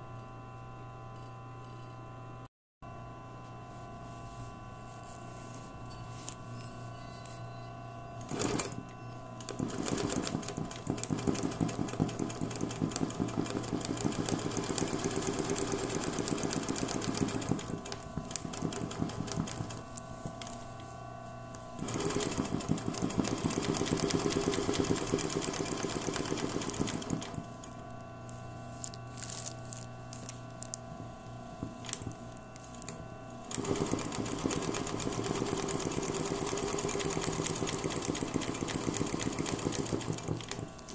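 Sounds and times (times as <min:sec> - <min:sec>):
sewing machine running fast: 0:08.3 - 0:08.8, 0:09.4 - 0:20.6, 0:21.8 - 0:27.6, 0:33.5 - 0:40.9.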